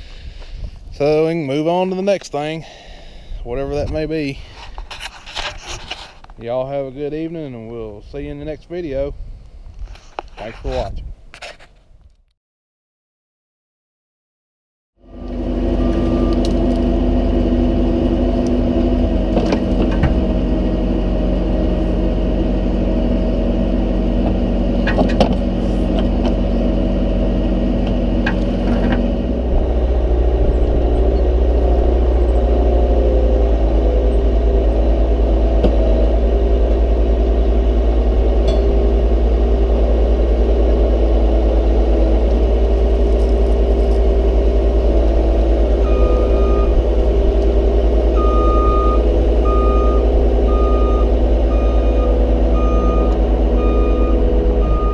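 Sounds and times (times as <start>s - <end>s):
vehicle engine running: 15.0s - 54.9s
sharp clicks and knocks: 24.2s - 26.4s.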